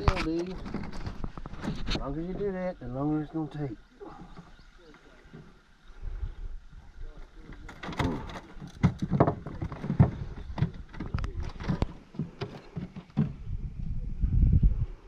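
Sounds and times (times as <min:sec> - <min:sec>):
fish knocking and thumping in boat: 0:07.6 - 0:13.6.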